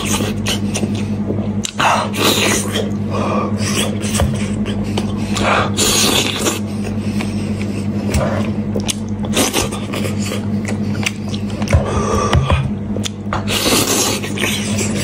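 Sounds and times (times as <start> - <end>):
steady low hum: 0.0 - 15.0
biting and chewing: 3.6 - 15.0.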